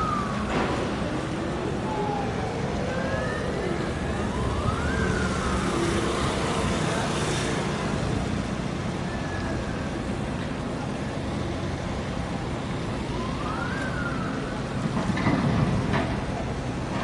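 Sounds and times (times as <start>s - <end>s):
outdoor noise: 0.0s - 17.0s
faint siren-like tone: 1.7s - 6.6s.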